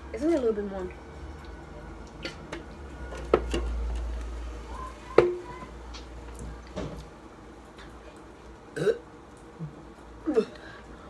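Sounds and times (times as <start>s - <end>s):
drink cans tapping on tabletop: 5.2s - 5.5s.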